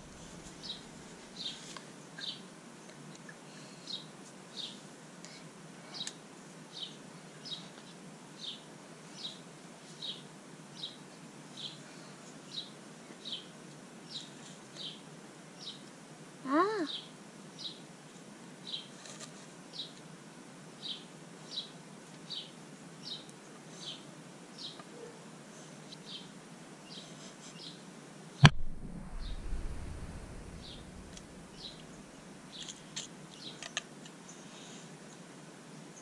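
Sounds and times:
sharp knock with low rumble: 0:28.4 - 0:31.6
bird chirping: 0:28.4 - 0:32.7.

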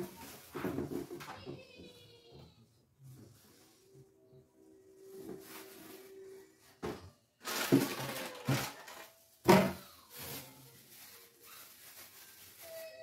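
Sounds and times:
plastic bags rustling: 0:00.0 - 0:02.2, 0:04.9 - 0:13.0.

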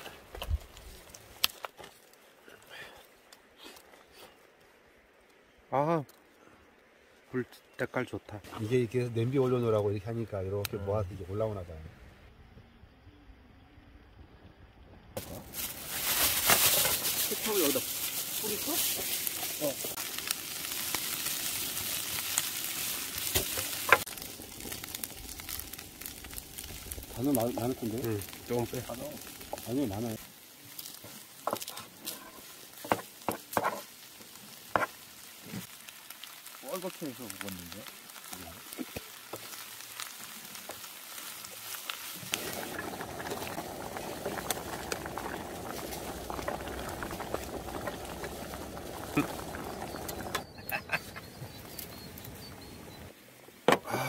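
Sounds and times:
food sizzling in a pan: 0:15.2 - 0:50.8
stew bubbling at a boil: 0:15.2 - 0:53.1.

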